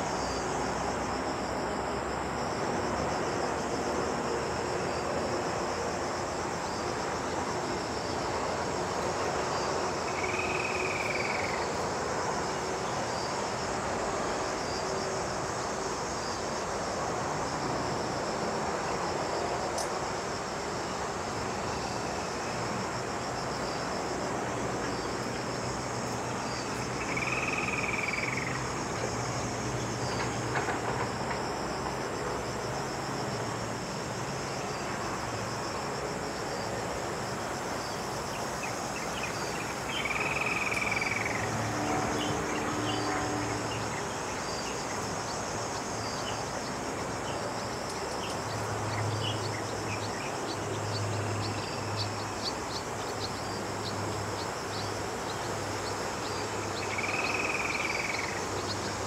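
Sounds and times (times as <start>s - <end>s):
cicadas buzzing: 0.0s - 59.0s.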